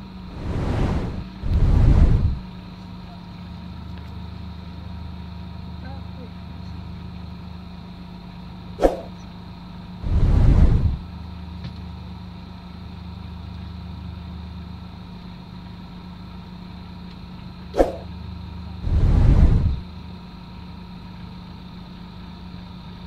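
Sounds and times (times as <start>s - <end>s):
loud rush of noise: 0.3s - 2.4s, 10.0s - 11.0s, 18.8s - 19.8s.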